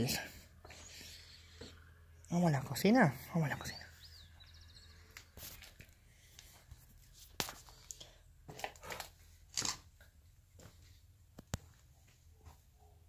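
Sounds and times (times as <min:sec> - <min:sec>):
footsteps crunching over debris: 0:05.2 - 0:09.9.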